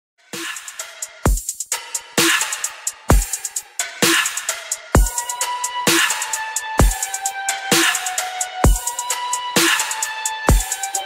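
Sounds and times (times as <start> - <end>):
electronic music: 0.2 - 11.0
hi-hat ticks: 0.4 - 11.0
deep kick drum: 3.1 - 3.3, 6.8 - 7.0.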